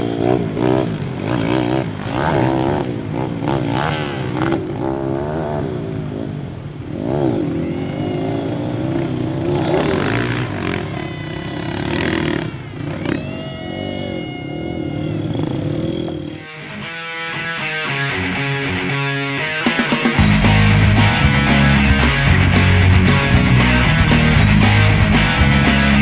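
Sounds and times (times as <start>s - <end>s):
motorbike engine revving: 0.0s - 13.4s, 14.5s - 26.0s.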